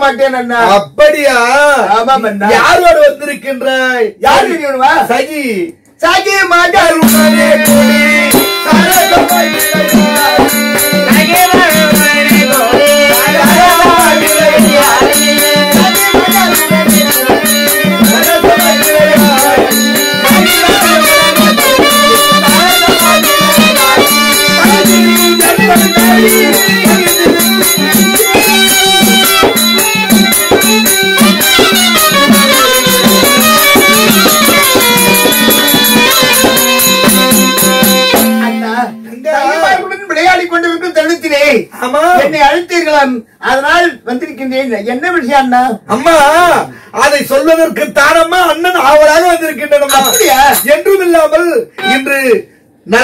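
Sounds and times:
fast percussion with jingling: 7.0 - 38.8, 47.2 - 52.0.

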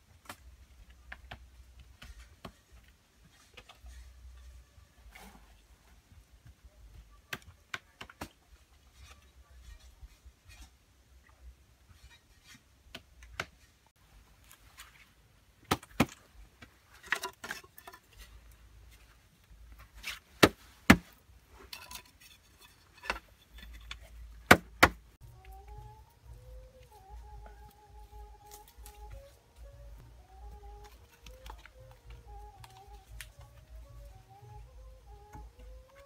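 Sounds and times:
knocks and clacks of bamboo: 0.2 - 4.0, 15.6 - 18.4, 19.8 - 25.2.

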